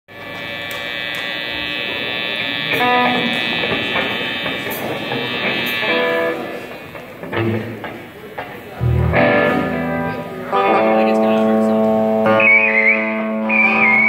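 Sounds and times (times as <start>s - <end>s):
picked electric guitar notes: 0.1s - 14.0s
rock band holding a chord: 0.1s - 14.0s.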